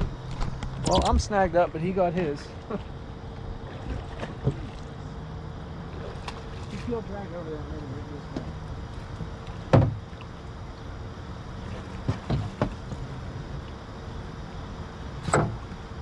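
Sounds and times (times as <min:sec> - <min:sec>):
steady low hum: 0:00.0 - 0:16.0
knocks against boat: 0:03.9 - 0:04.8, 0:09.7 - 0:10.1, 0:11.8 - 0:13.0, 0:15.2 - 0:15.8.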